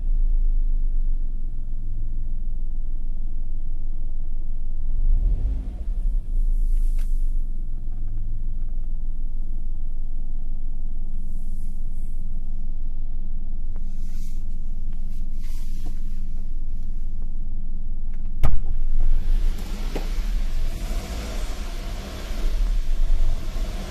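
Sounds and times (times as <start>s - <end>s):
car engine idling: 0.0s - 23.9s
sharp thump: 18.4s - 19.0s.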